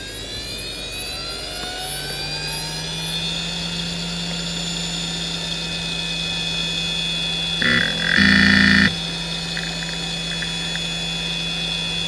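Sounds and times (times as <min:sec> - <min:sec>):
hard drive spinning up: 0:07.3 - 0:12.0
low steady hum: 0:07.6 - 0:11.0.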